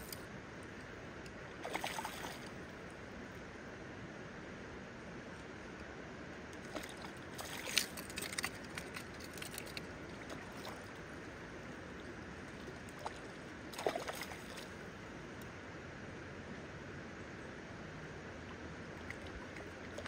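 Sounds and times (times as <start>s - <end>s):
river water running: 0.0s - 20.0s
water splashing: 1.6s - 2.6s, 6.6s - 11.2s, 12.5s - 14.8s.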